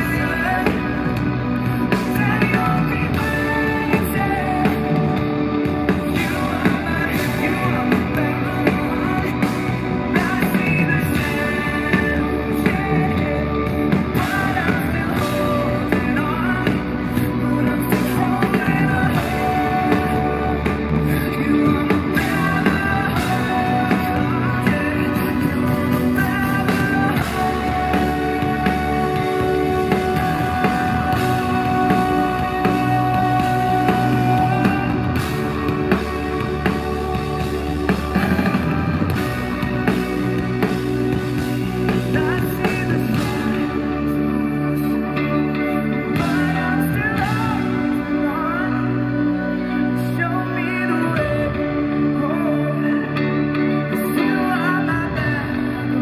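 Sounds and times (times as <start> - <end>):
bass guitar: 0.0 - 56.0
drums: 0.0 - 56.0
electric guitar: 0.0 - 56.0
keyboards: 0.0 - 56.0
man singing lead vocals: 0.0 - 56.0.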